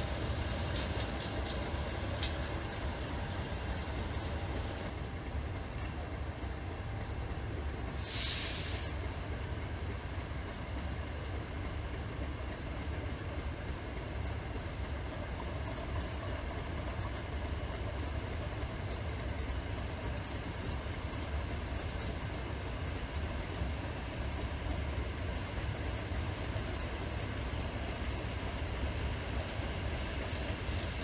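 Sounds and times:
diesel locomotive deep rumble: 0.0 - 31.0
short hiss: 8.0 - 9.0.

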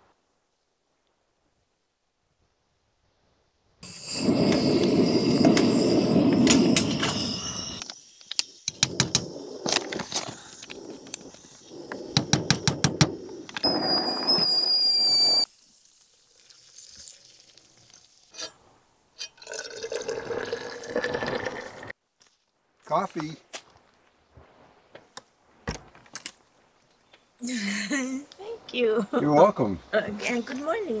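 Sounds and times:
kettle whistling: 3.8 - 15.5
camp stove flame rushing: 3.8 - 18.6
coffee pouring into bottle: 16.3 - 17.7, 19.4 - 21.9.

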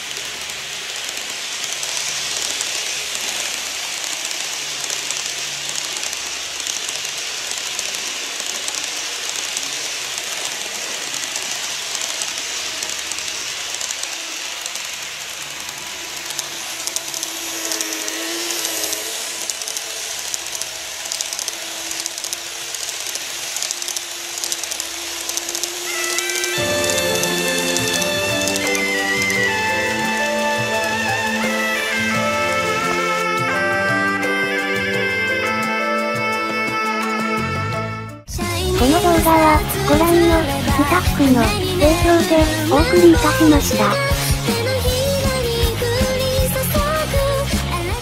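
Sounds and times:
faint motor hum: 0.0 - 34.4
model train wheels rattling on rails: 0.0 - 37.1.

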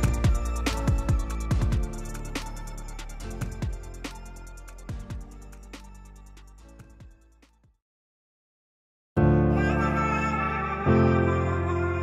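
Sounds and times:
deep drum thumps: 0.0 - 2.0, 3.4 - 3.9, 4.9 - 5.4.

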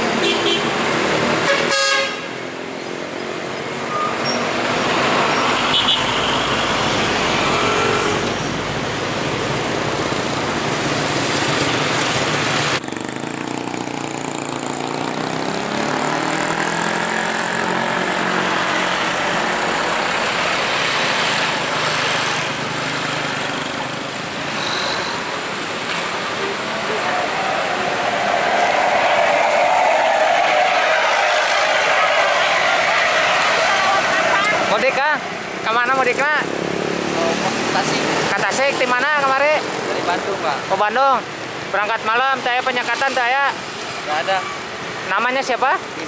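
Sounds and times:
road traffic passing: 0.0 - 46.0
vehicle horn: 0.2 - 0.8, 1.4 - 2.3, 5.6 - 8.4
motorcycle engines passing: 10.1 - 40.6.

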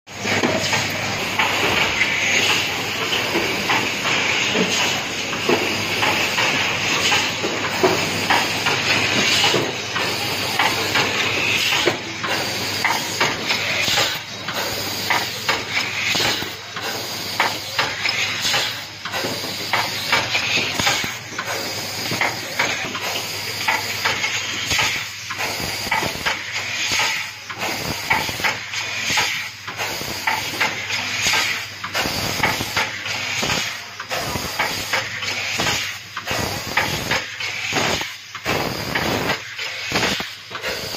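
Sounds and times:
compressed air hissing: 29.0 - 40.9.

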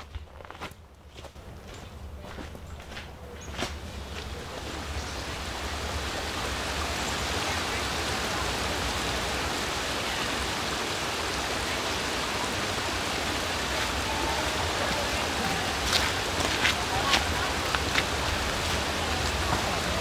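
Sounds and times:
stream water flowing: 1.1 - 20.0.

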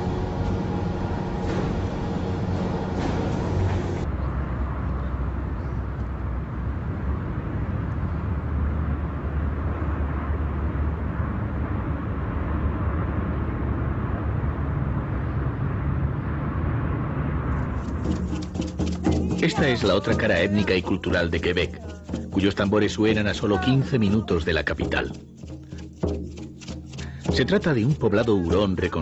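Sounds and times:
aircraft engine rumble: 0.0 - 15.8.

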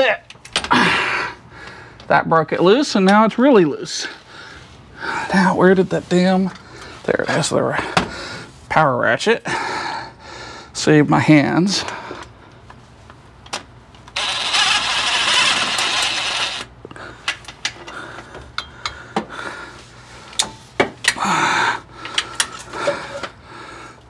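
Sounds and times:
power ratchet running: 14.2 - 16.7.

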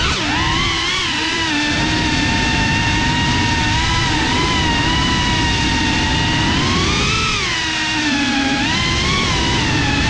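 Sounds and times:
drone motors whining: 0.0 - 10.0.

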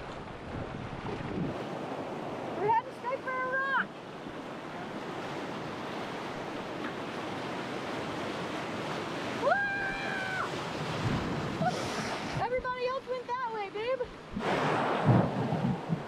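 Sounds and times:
whitewater rushing: 1.5 - 16.0
raft thudding on wave: 14.2 - 16.0.

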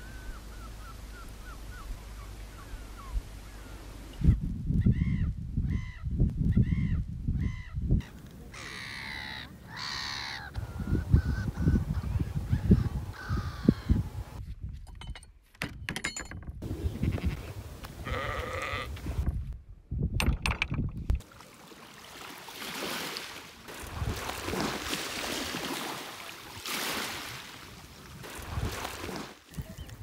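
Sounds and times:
wind rumble: 4.1 - 8.2, 10.5 - 15.1, 16.4 - 21.2
sheep bleating: 18.0 - 19.0.

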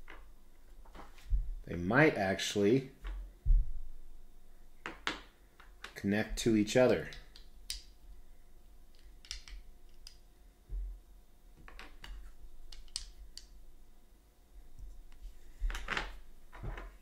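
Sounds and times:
soft low thump: 1.3 - 1.6, 3.4 - 3.9
small parts clicking and tapping: 6.8 - 8.2, 8.8 - 10.2, 11.6 - 13.6.

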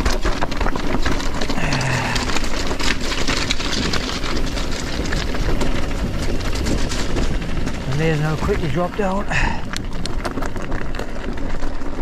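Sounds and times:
bike rattling: 0.0 - 12.0
tyres clattering over loose rock: 0.0 - 12.0.

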